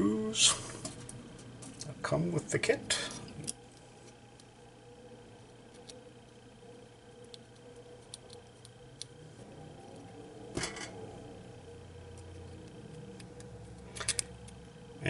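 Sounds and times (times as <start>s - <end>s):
low steady hum: 0.0s - 15.0s
small parts clicking and rustling: 12.2s - 14.6s.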